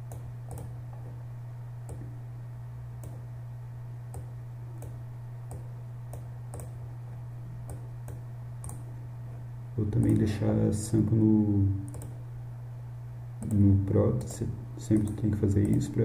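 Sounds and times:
low electrical hum: 0.0 - 16.0
computer mouse clicking: 0.1 - 0.7, 4.1 - 6.8, 7.6 - 8.8, 11.9 - 12.2, 13.4 - 14.4.

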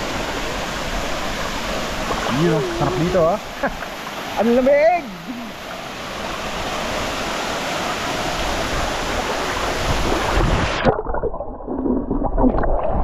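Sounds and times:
waterfall rushing: 0.0 - 10.9
wind buffeting microphone: 8.6 - 10.8.

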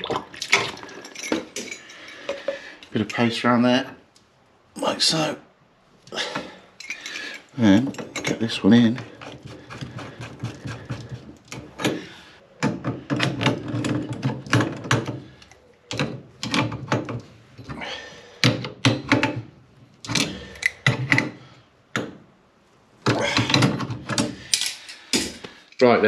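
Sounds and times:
metallic clicks and clanks of pliers: 23.5 - 25.9.

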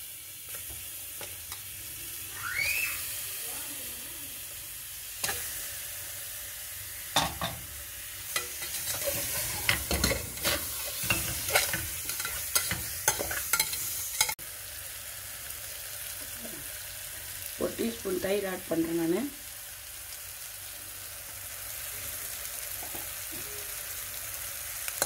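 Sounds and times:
chicken sizzling in hot oil: 0.0 - 25.0
steel spoon scraping a pot: 8.3 - 14.4.

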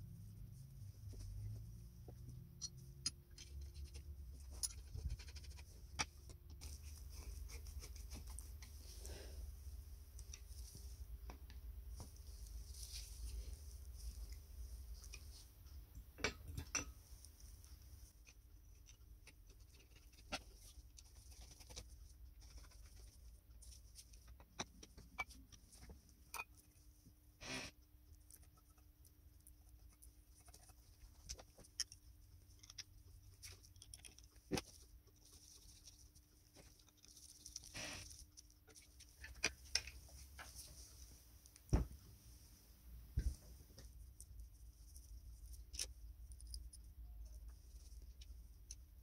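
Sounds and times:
metal parts clicking and tapping: 2.5 - 6.3.

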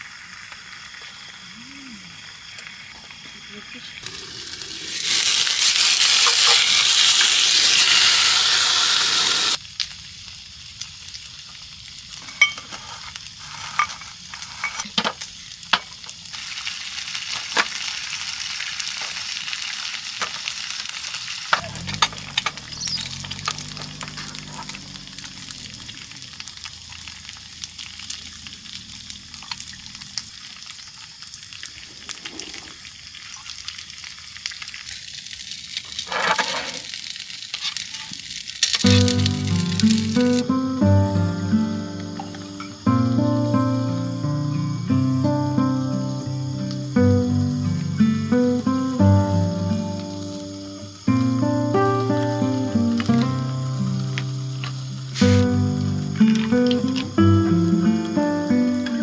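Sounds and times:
meat sizzling in a skillet: 0.0 - 40.7, 45.9 - 59.0
low hum: 21.6 - 27.2.

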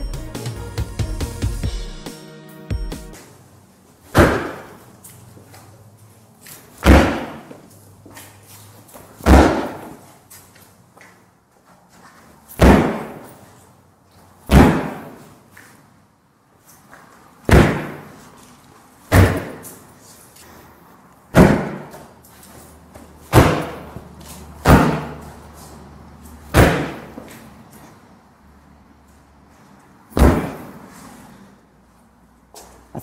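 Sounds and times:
boot kicking a door: 4.1 - 4.8, 6.8 - 7.6, 9.2 - 10.0, 12.6 - 13.3, 14.5 - 15.2, 17.5 - 18.1, 19.1 - 19.7, 21.3 - 22.0, 23.3 - 24.0, 24.6 - 25.2, 26.5 - 27.4, 30.2 - 30.8.

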